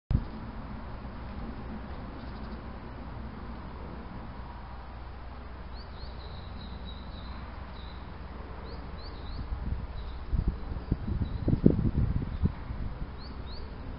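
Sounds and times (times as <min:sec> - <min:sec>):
low rumble and hiss: 0:00.1 - 0:13.9
small bird chirping: 0:02.2 - 0:02.7, 0:05.7 - 0:12.6, 0:13.2 - 0:13.8.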